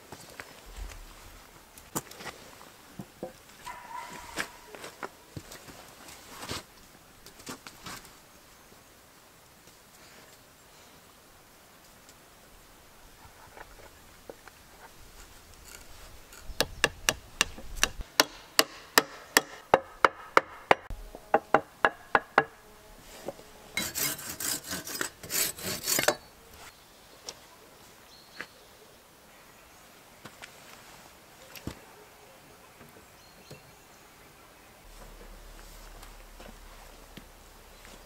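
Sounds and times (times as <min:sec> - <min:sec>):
rough scraping: 0:14.7 - 0:16.8, 0:22.8 - 0:26.7, 0:34.9 - 0:38.0
hammer blows on wooden poles: 0:16.6 - 0:22.6.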